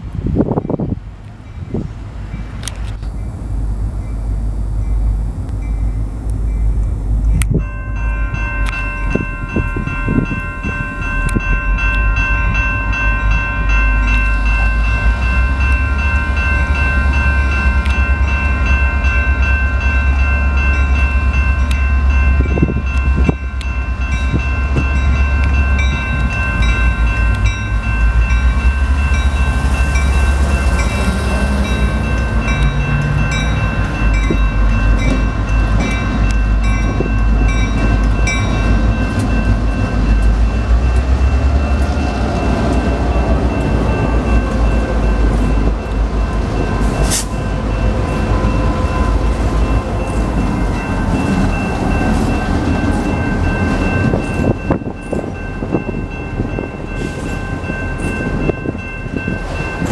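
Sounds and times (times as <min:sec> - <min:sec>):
diesel locomotive engines rumbling: 0:00.0 - 0:59.9
crossing warning bell ringing: 0:00.4 - 0:59.9.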